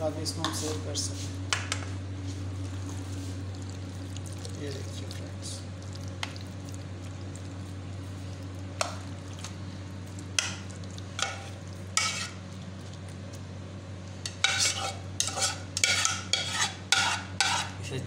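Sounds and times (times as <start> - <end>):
steady low hum: 0.0 - 18.0
spatula scraping pasta from pot: 11.2 - 12.4, 14.3 - 17.8.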